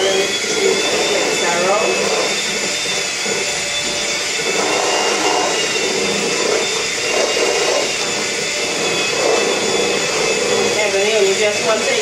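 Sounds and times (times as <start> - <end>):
electric hand mixer whining: 0.0 - 12.0.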